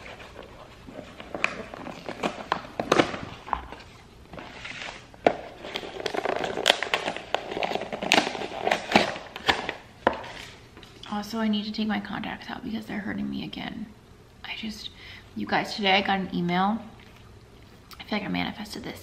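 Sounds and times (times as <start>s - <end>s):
cardboard and paper crackling: 0.0s - 10.6s.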